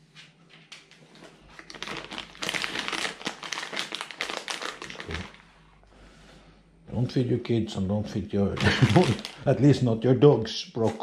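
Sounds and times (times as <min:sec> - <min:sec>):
plastic packet crinkling: 0:01.5 - 0:05.5, 0:08.5 - 0:09.8.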